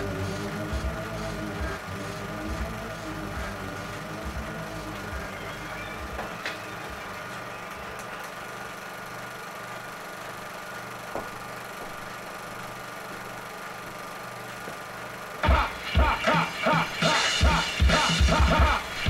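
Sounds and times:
hip-hop beat: 0.0s - 9.0s, 15.4s - 19.0s
low mechanical hum: 0.0s - 19.0s.

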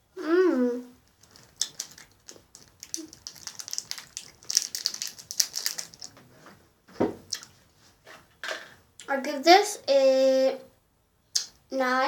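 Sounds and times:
candy wrapper crinkling: 1.0s - 6.2s.

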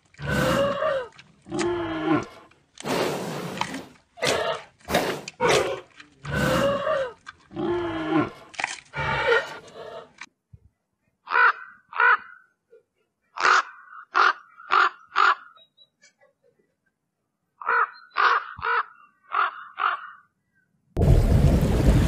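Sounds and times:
bird cawing harshly: 17.6s - 20.2s.

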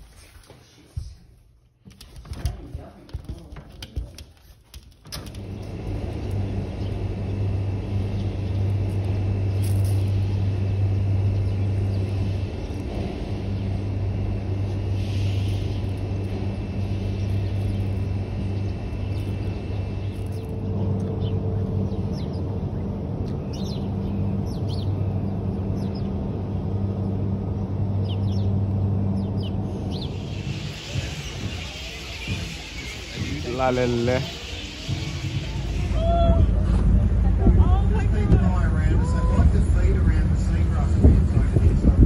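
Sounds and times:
low outdoor rumble with hum: 0.0s - 42.0s
bird chirps: 23.3s - 26.1s, 29.2s - 35.9s.

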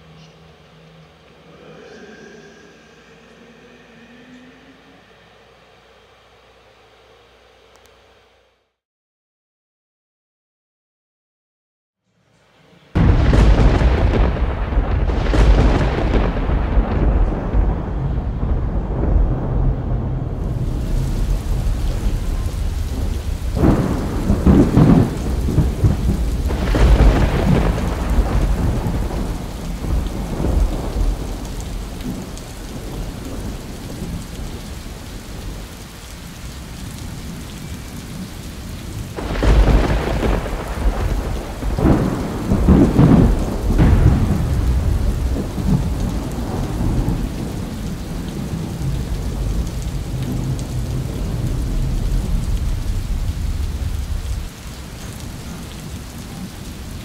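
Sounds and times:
steady rain: 12.4s - 57.0s
rolling thunder: 13.0s - 57.0s.

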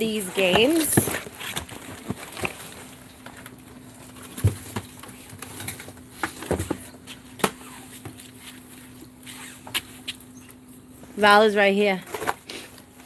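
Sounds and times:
small items knocking and rattling: 0.0s - 7.0s.

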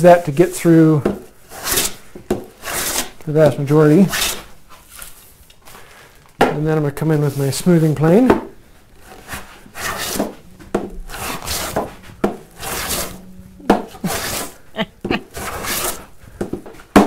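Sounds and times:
hand plane shaving wood: 1.4s - 3.2s, 4.0s - 4.5s, 9.0s - 16.6s.

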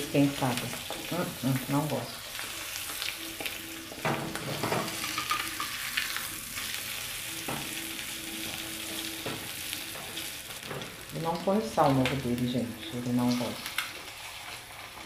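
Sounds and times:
egg sizzling in a pan: 0.0s - 15.0s
spatula scraping and tapping pan: 2.4s - 6.8s, 8.4s - 11.0s.

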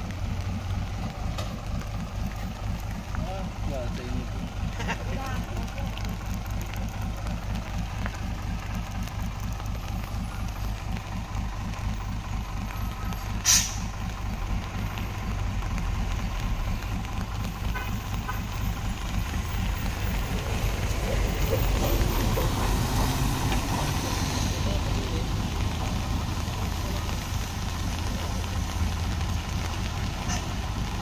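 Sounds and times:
diesel truck engine running: 0.0s - 31.0s
short sharp hiss: 13.4s - 13.9s.

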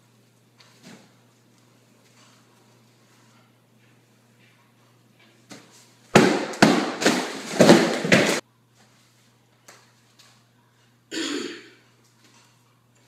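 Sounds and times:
throaty cough-like noise: 11.1s - 11.8s.

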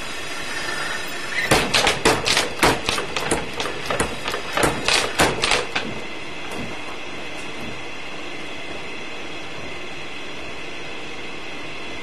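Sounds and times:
steady hum: 0.0s - 12.0s
power hammer striking steel: 0.5s - 6.9s.

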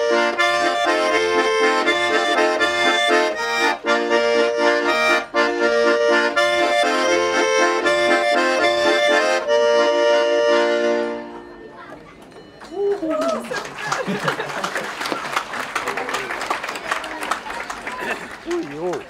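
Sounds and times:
button accordions playing folk tune: 0.0s - 11.9s.

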